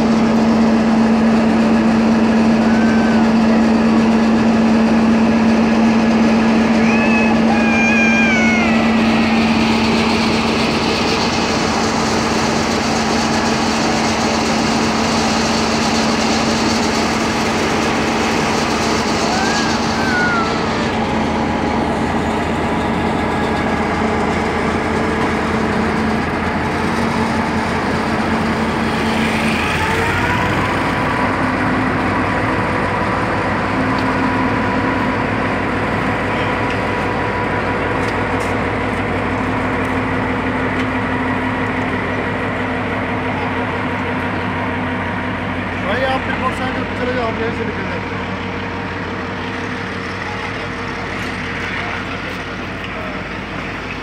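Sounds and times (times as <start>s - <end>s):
locomotive diesel engine running: 0.0s - 54.0s
train wheels and brakes squealing: 1.6s - 21.3s.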